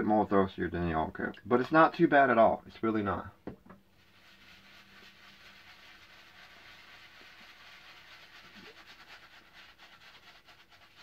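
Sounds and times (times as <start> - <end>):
shaving brush scrubbing lather: 4.0 - 11.0.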